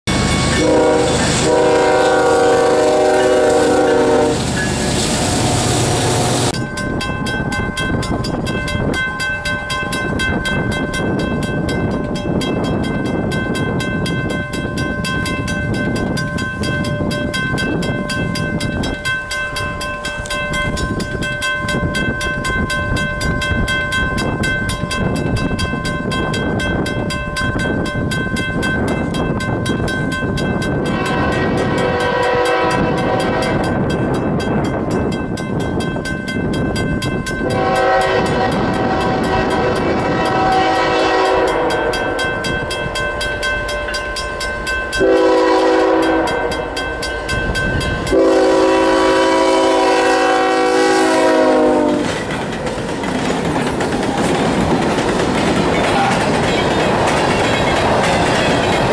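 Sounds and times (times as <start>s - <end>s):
locomotive air horn blasts: 0.4s - 4.5s, 30.8s - 33.7s, 37.4s - 42.2s, 45.0s - 46.7s, 48.1s - 52.1s
train wheels clicking over rail joints: 51.9s - 58.9s.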